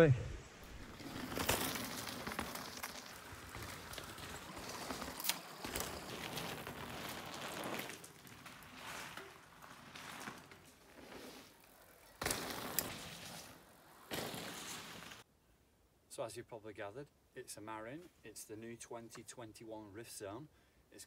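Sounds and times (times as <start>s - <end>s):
bike tyres crunching on gravel: 0.6s - 15.2s
bike clicks and rattles: 0.8s - 15.2s.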